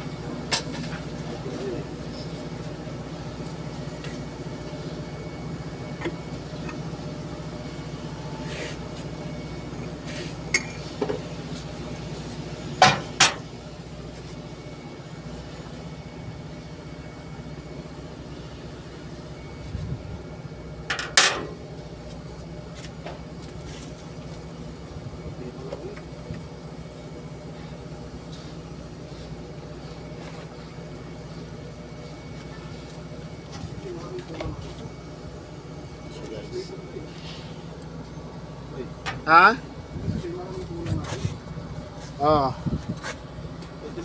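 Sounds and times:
low machine hum: 0.0 - 44.0
metallic clanks of tools on metal: 20.9 - 21.6.

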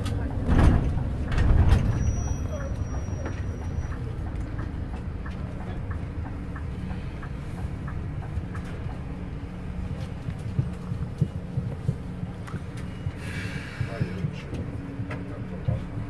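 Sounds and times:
sharp knocks and rattles: 0.0 - 9.4
coach engine rumbling: 0.0 - 16.0.

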